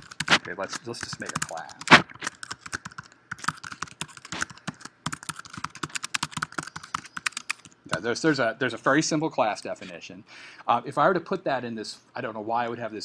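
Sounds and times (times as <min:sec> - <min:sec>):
computer keyboard typing: 0:00.0 - 0:08.0.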